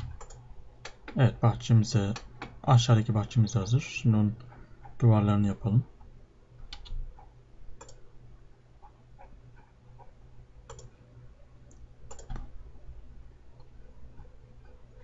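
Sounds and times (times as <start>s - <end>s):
computer mouse clicks: 0.0s - 1.2s, 6.6s - 8.1s, 8.8s - 11.0s, 11.7s - 12.5s.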